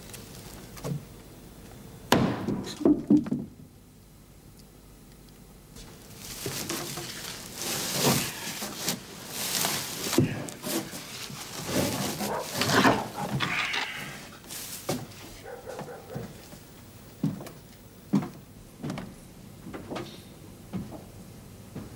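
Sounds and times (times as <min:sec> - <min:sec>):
sharp knocks of crates: 0:02.1 - 0:03.6, 0:10.0 - 0:13.6
rustling and scraping straw: 0:05.8 - 0:16.6.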